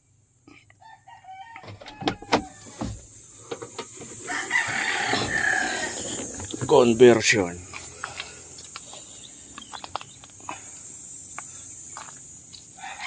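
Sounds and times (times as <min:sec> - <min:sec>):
rooster crowing: 0:00.8 - 0:02.9, 0:04.2 - 0:06.3, 0:12.8 - 0:13.0.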